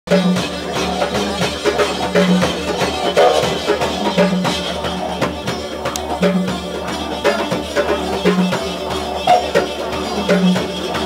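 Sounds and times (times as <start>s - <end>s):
didgeridoo drone: 0.1s - 11.0s
hand percussion strokes: 0.1s - 11.0s.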